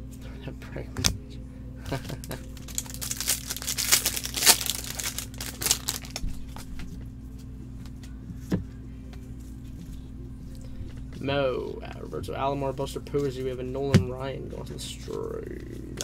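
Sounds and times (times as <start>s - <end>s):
low room hum: 0.0s - 16.0s
plastic card sleeves rustling: 2.4s - 6.8s.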